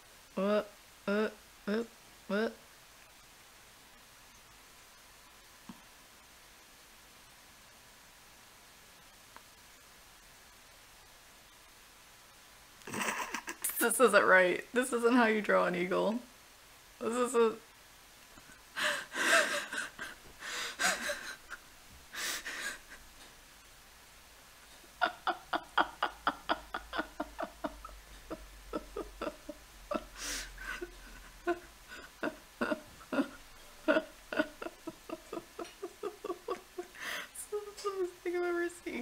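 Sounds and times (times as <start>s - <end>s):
man laughing under his breath: 12.9s - 13.7s, 18.8s - 23.0s, 25.0s - 37.3s.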